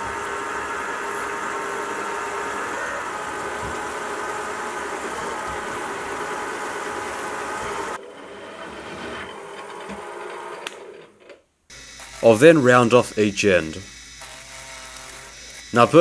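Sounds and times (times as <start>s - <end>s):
milling machine drilling steel: 0.0s - 8.0s, 11.7s - 16.0s.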